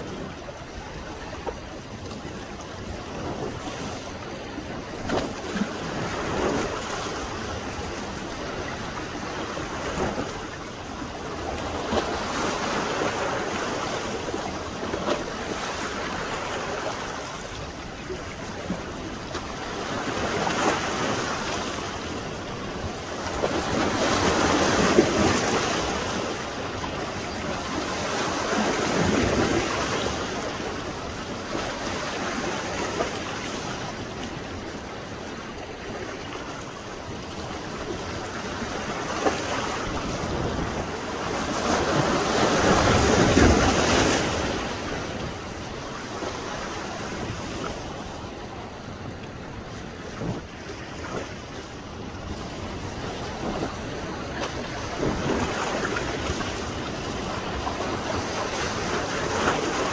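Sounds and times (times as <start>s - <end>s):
surf breaking on beach: 36.4s - 59.9s.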